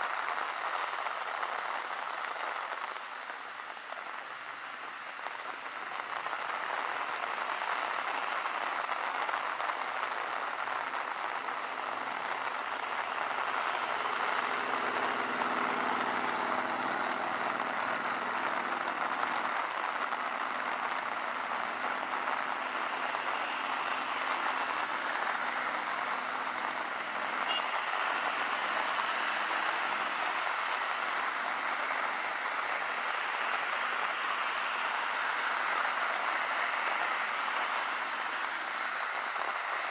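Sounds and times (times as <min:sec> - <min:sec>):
steady rain falling: 0:00.0 - 0:39.9
vehicle engine passing: 0:13.9 - 0:18.4.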